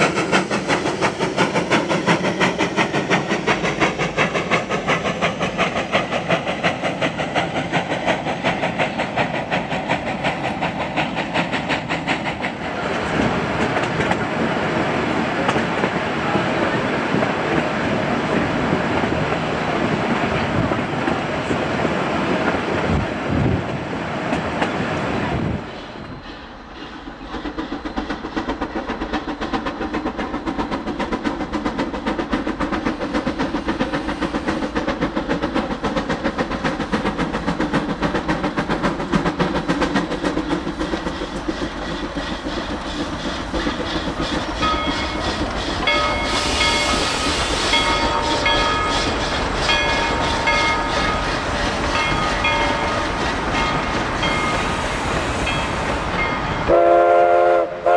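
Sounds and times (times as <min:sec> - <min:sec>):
steam locomotive chugging: 0:00.0 - 0:57.9
steam whistle short blasts: 0:56.7 - 0:57.9.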